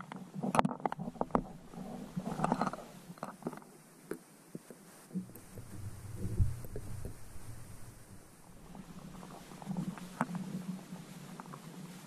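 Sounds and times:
muffled underwater knocks and clicks: 0.0 - 4.3, 5.1 - 12.0
low underwater rumbling: 0.9 - 3.3, 5.2 - 11.9.

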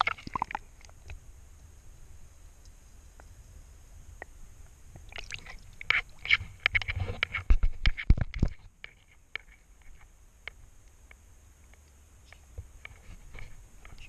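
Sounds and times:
water sloshing: 5.1 - 6.9.

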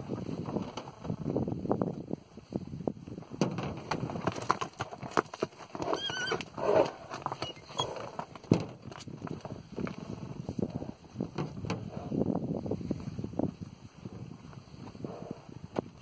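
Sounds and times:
hoof stamps on stony ground: 3.0 - 12.2
horse lower cry: 5.8 - 8.3
horse squealing: 5.8 - 8.3.

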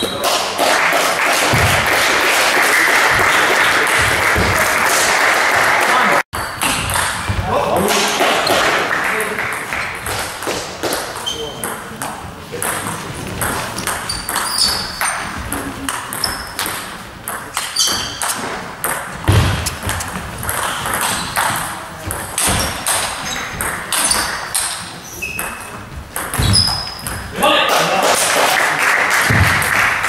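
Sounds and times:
ball bouncing on table: 10.0 - 27.3
ping pong ball clicking on bats: 26.2 - 27.2.

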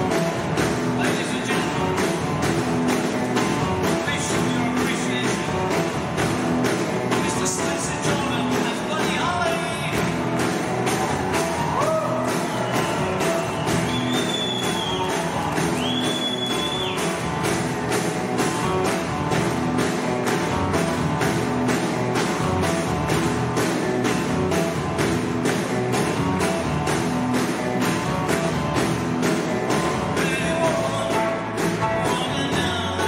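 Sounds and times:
electric guitars: 0.0 - 33.0
steady drum beat: 0.0 - 33.0
person singing: 29.7 - 33.0.

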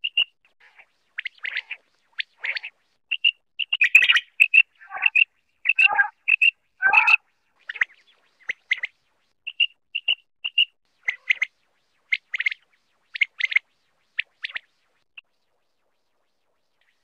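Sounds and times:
quail calling: 0.7 - 7.9.

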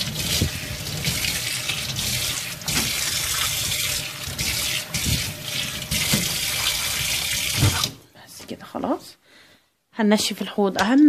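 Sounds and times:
tap water splashing into sink: 0.0 - 8.0.

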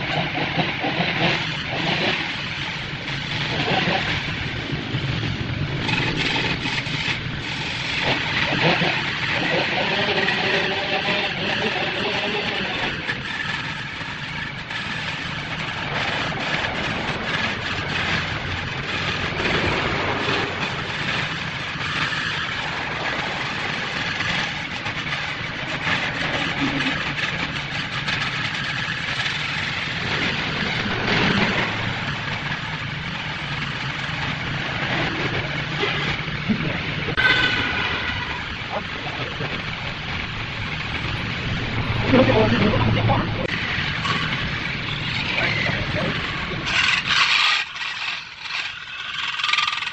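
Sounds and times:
lathe motor hum: 0.0 - 36.0, 39.3 - 49.9
turning tool scraping wood: 5.8 - 38.5, 43.4 - 49.9.

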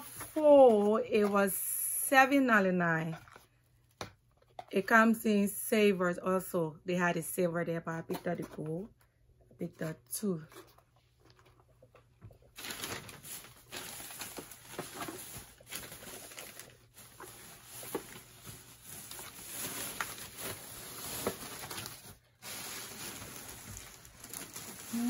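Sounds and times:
crinkly wrapping rustle: 10.5 - 25.0.

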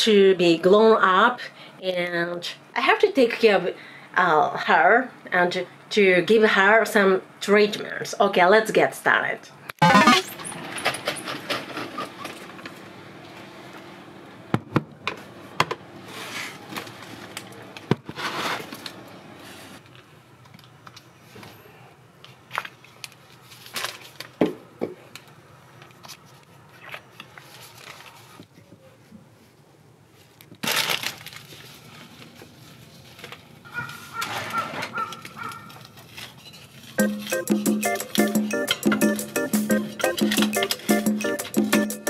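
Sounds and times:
rustles and scrapes: 18.1 - 19.9, 25.9 - 30.4, 31.2 - 37.0.

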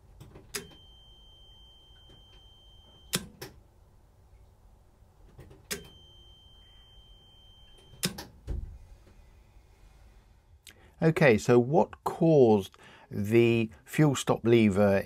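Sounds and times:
solenoid clicking: 0.2 - 0.8, 3.1 - 3.6, 5.4 - 6.0, 7.8 - 8.4
low thump: 8.4 - 8.9.

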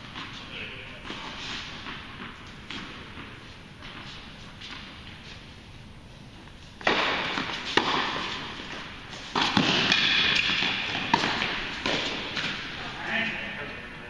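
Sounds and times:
tennis balls struck by racquets: 6.8 - 12.8.

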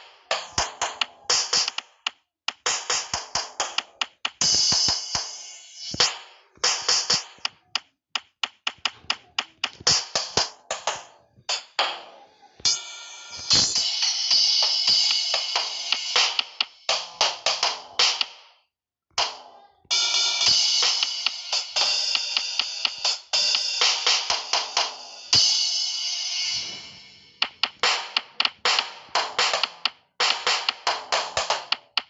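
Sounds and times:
drum hits: 2.6 - 5.3.

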